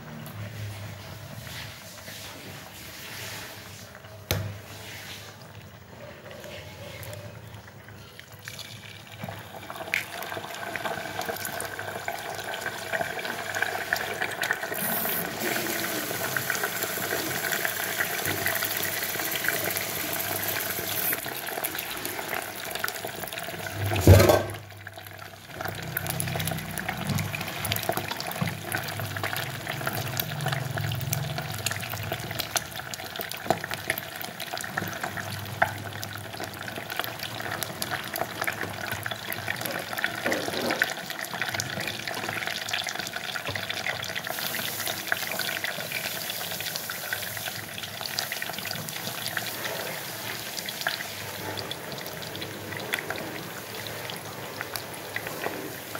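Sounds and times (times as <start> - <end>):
egg sizzling in hot oil: 7.0 - 55.9.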